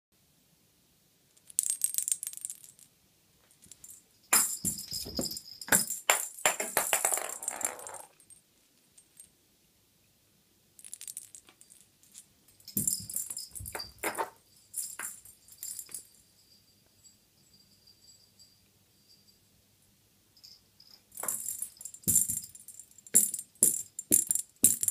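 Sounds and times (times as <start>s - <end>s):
cat toy rattling and jingling: 3.6s - 8.2s.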